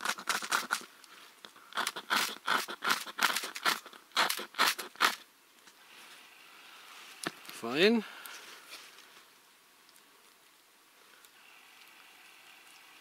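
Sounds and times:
ferro rod rasping scrapes: 0:01.8 - 0:05.2.

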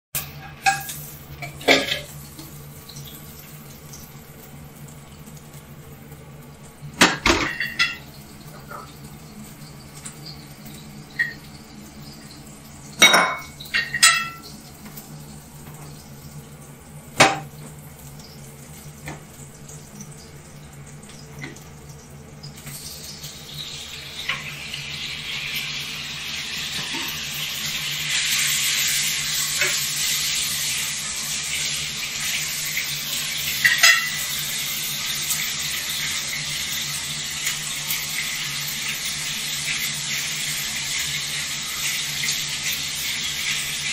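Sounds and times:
pots and dishes clattering: 0:00.2 - 0:02.5, 0:07.0 - 0:09.1, 0:10.0 - 0:11.5, 0:12.9 - 0:15.0, 0:17.2 - 0:17.8, 0:26.7 - 0:27.3, 0:29.3 - 0:29.9, 0:33.5 - 0:34.5.

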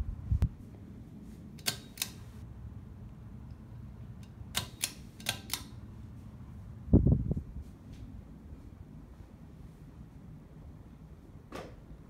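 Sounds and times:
ceiling fan humming: 0:00.0 - 0:12.0
pull-chain switch clicks: 0:01.6 - 0:02.2, 0:04.2 - 0:05.8.

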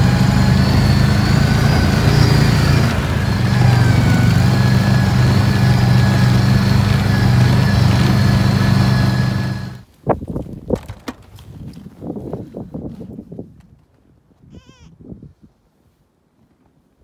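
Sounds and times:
vehicle engine humming: 0:00.0 - 0:09.8.

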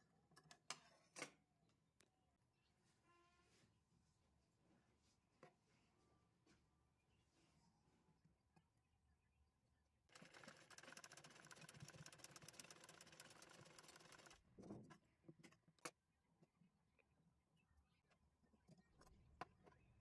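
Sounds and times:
sewing machine stitching: 0:10.1 - 0:14.4.

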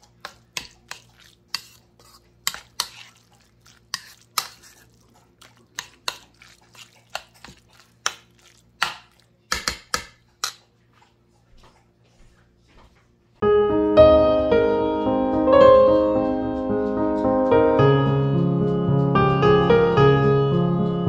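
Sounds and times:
piano music: 0:13.4 - 0:21.0.

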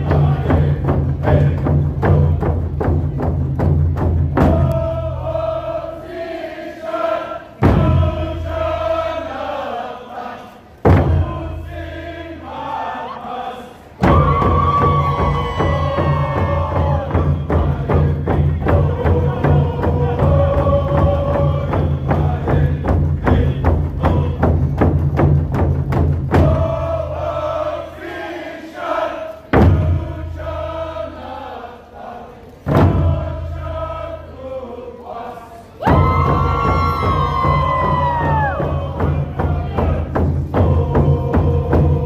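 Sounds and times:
group of voices chanting: 0:00.0 - 0:02.4, 0:04.4 - 0:24.6, 0:26.4 - 0:42.0
steady drumbeat: 0:00.0 - 0:06.5, 0:07.6 - 0:09.3, 0:10.8 - 0:12.1, 0:14.0 - 0:28.2, 0:29.5 - 0:31.2, 0:32.6 - 0:34.3, 0:35.8 - 0:42.0.

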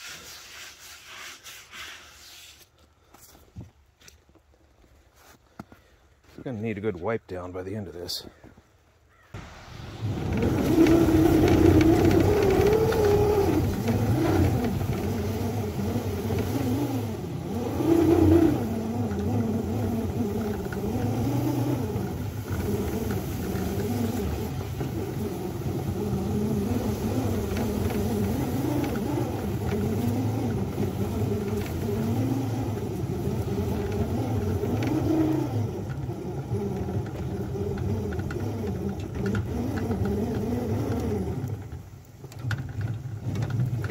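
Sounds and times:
miniature locomotive running: 0:09.6 - 0:41.6.

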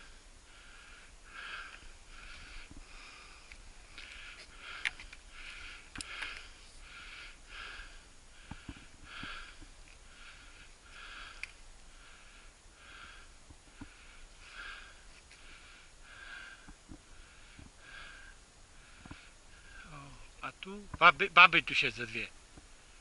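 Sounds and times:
quick rhythmic breathing: 0:00.0 - 0:19.9
faint clicks: 0:02.6 - 0:06.6, 0:11.2 - 0:11.6.

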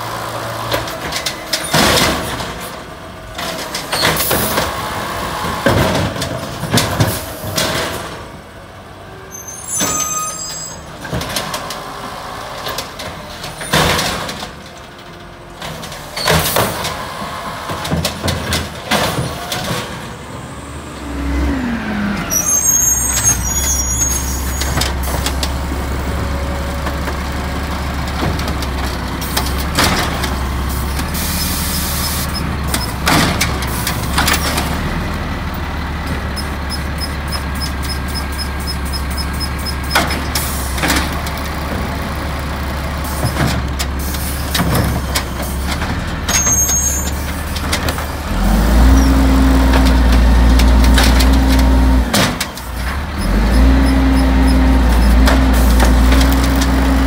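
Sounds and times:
diesel engine running: 0:20.0 - 0:57.0.

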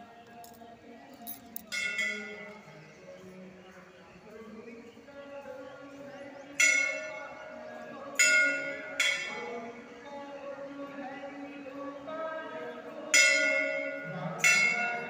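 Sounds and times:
murmur of voices: 0:00.0 - 0:15.0
temple bell ringing: 0:01.7 - 0:02.7, 0:06.5 - 0:09.8, 0:13.1 - 0:15.0.

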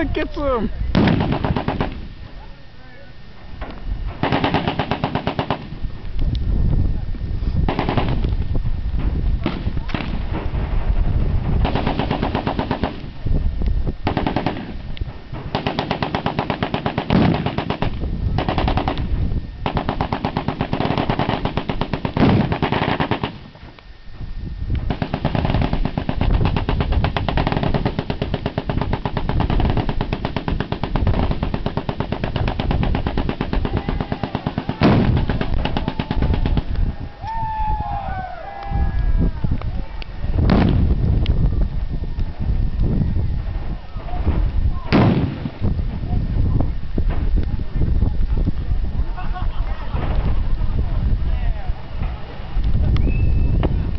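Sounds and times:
heavy explosion: 0:00.9 - 0:02.2, 0:07.6 - 0:23.5, 0:24.8 - 0:36.9, 0:40.3 - 0:42.0, 0:43.2 - 0:47.4, 0:49.8 - 0:51.0
machine guns firing bursts: 0:01.0 - 0:02.1, 0:04.2 - 0:05.8, 0:07.7 - 0:08.2, 0:11.5 - 0:13.2, 0:14.0 - 0:23.6, 0:24.9 - 0:36.7.

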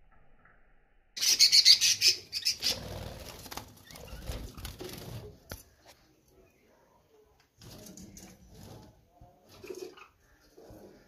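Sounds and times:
birds fluttering in a cage: 0:01.2 - 0:05.9, 0:07.6 - 0:11.0.

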